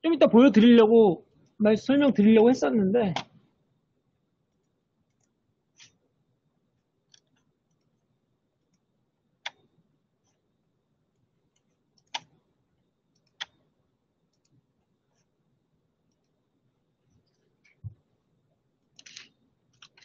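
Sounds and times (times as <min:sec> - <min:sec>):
computer mouse clicks: 0:04.5 - 0:06.0, 0:07.1 - 0:08.0, 0:09.4 - 0:10.4, 0:11.5 - 0:12.4, 0:13.1 - 0:13.6, 0:14.3 - 0:14.6, 0:18.9 - 0:20.0.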